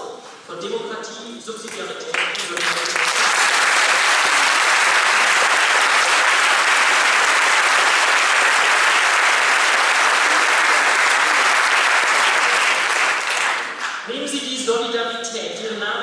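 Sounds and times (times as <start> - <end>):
audience applauding: 2.1 - 14.0.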